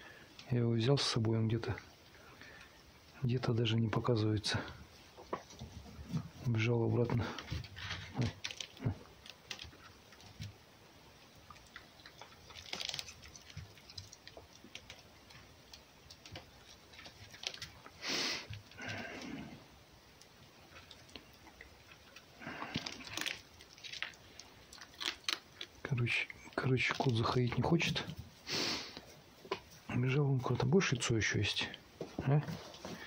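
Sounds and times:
fox chewing food: 4.6s - 29.9s.

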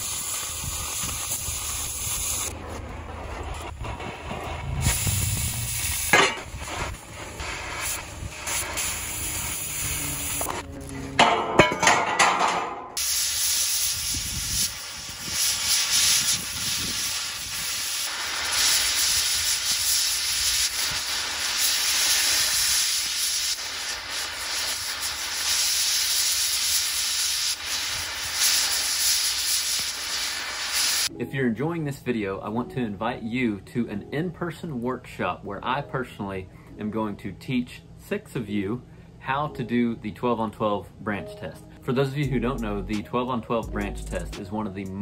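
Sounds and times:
torch cracks and pops: 0.0s - 2.6s, 3.4s - 10.6s, 13.0s - 31.1s
cutting torch hissing: 0.0s - 10.7s, 13.0s - 31.1s.

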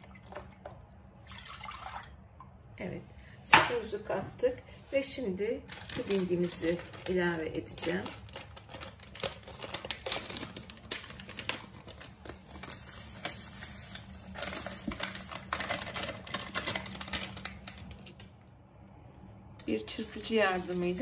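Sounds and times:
paper packet crinkling: 5.5s - 18.3s, 20.0s - 21.0s.

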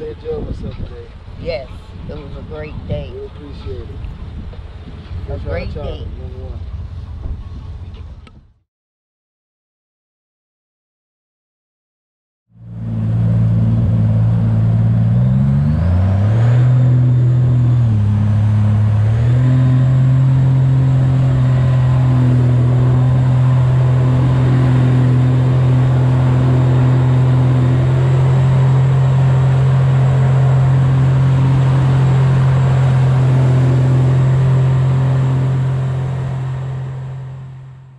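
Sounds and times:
outboard motor at speed: 0.0s - 8.6s, 12.6s - 37.9s
water rushing past hull: 12.6s - 37.8s.

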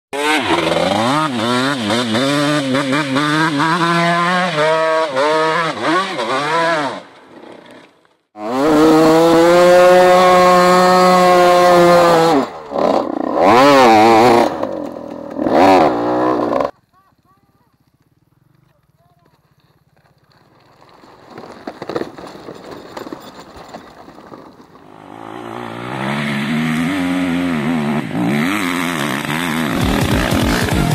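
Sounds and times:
dirt bike engines revving: 0.2s - 7.1s, 8.4s - 16.8s, 24.8s - 30.9s.

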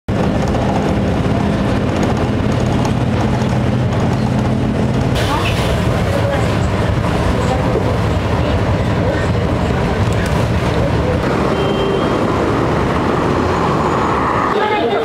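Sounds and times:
vehicle engines rumbling: 0.1s - 15.0s.

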